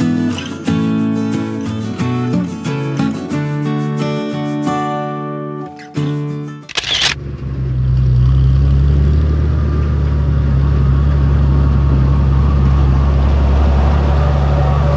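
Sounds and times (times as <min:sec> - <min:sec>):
garden tractor engine running: 0:06.7 - 0:07.2.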